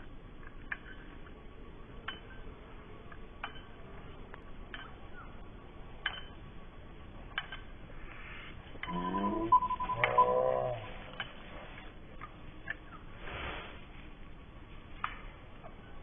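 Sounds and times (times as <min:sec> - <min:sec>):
soft metallic clinks: 0:00.3 - 0:11.5.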